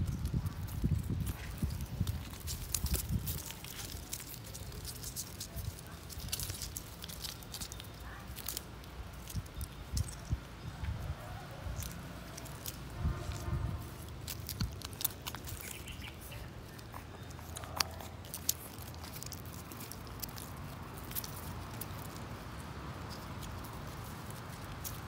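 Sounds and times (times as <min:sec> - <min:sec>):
low rumble: 0:11.7 - 0:15.6
puppies suckling wet clicks: 0:14.0 - 0:22.3.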